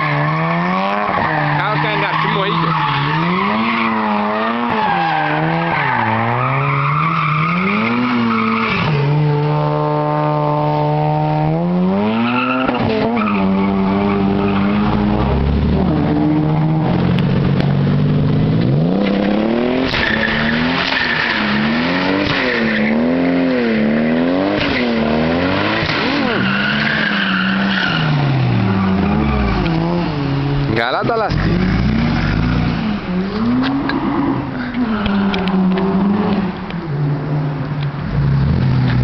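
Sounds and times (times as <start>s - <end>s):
tyres squealing and skidding: 0.0s - 9.8s, 11.9s - 17.5s, 18.6s - 37.1s
sports car engine revving: 27.8s - 39.0s.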